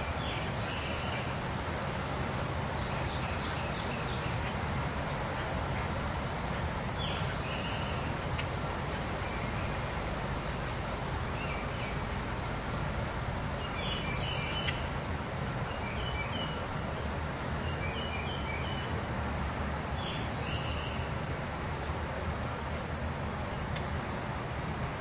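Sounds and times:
birds chirping: 0:07.0 - 0:08.5, 0:13.5 - 0:15.0, 0:15.6 - 0:18.9.

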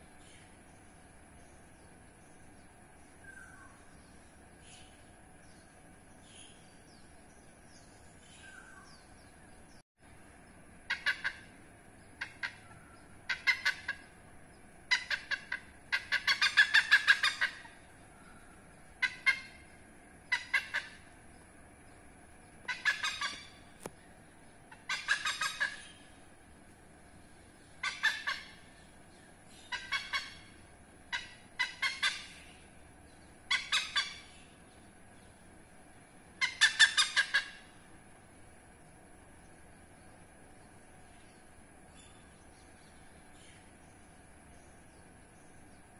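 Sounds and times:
hornbill calling: 0:10.8 - 0:14.2, 0:14.8 - 0:21.2, 0:22.6 - 0:26.3, 0:27.6 - 0:34.7, 0:36.3 - 0:37.9.

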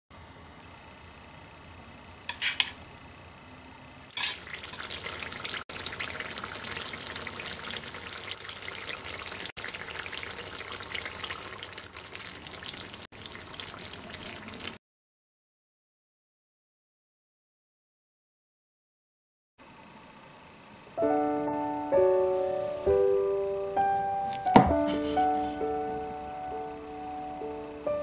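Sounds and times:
oil bubbling and sizzling: 0:02.3 - 0:03.0, 0:04.1 - 0:14.8.

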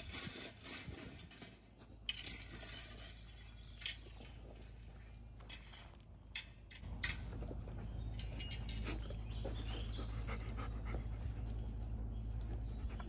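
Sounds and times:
low steady rumble: 0:00.0 - 0:13.0
puppy panting: 0:09.0 - 0:11.9.

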